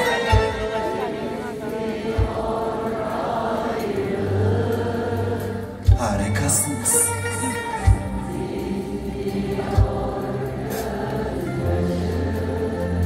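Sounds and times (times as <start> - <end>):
live band music: 0.0 - 11.2
low drum thumps: 9.8 - 10.2.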